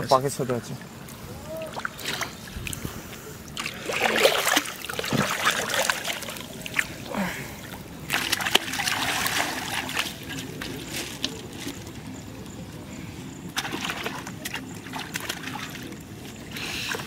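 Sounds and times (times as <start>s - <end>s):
hands splashing in water: 3.5s - 7.0s, 7.6s - 11.9s, 13.5s - 16.0s.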